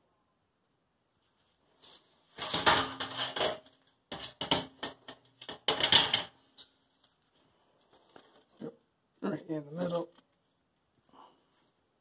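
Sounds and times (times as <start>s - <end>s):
metal parts knocking and clattering: 2.4s - 6.4s.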